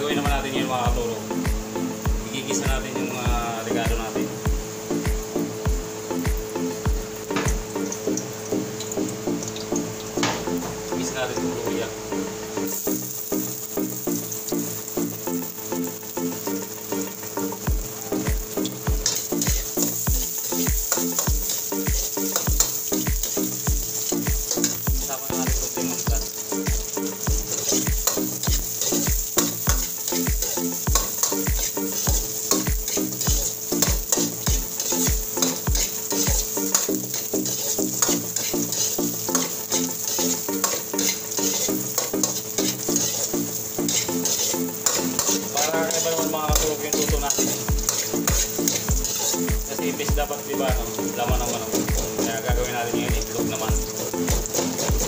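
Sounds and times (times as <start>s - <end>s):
food sizzling in hot oil: 0.0s - 55.0s
metal ladle scraping wok: 17.6s - 49.8s, 53.8s - 55.0s.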